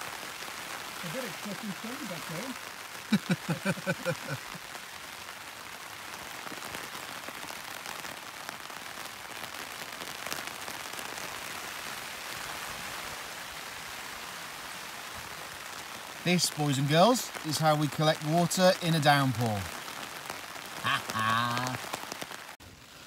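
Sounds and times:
heavy rain on a tent: 0.0 - 23.0
man's voice: 1.0 - 4.4, 16.3 - 19.7, 20.8 - 21.8.

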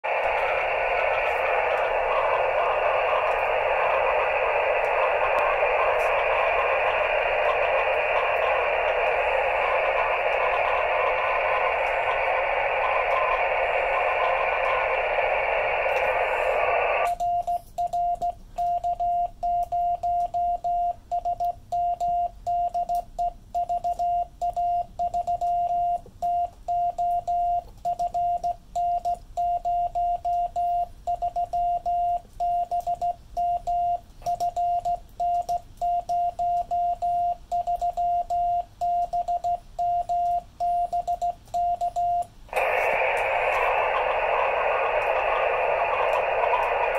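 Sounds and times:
radio receiver hiss: 0.0 - 17.2, 42.3 - 46.9
morse code beeps: 0.1 - 46.9.

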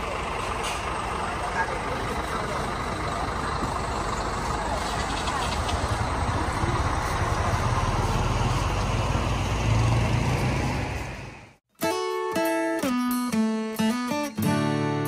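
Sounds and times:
engine idling: 0.0 - 9.3
outdoor background noise: 0.0 - 11.6.

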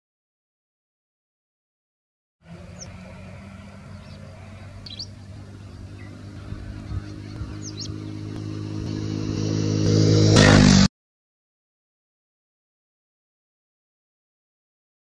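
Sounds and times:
vehicle engine running: 2.4 - 10.9.

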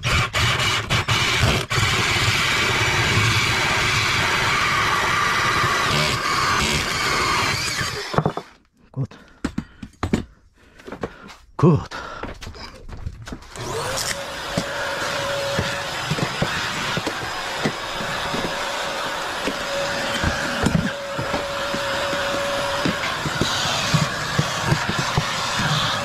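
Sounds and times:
vacuum cleaner motor whine: 1.2 - 8.2, 13.5 - 26.0.

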